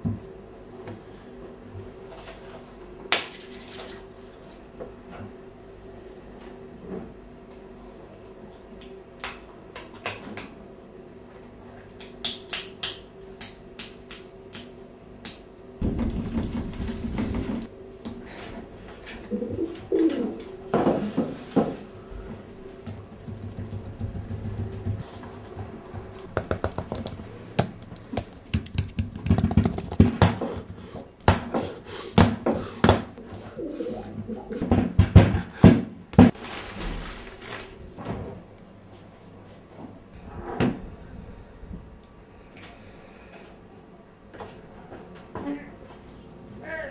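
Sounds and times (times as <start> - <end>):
rustling: 36.3 - 37.9.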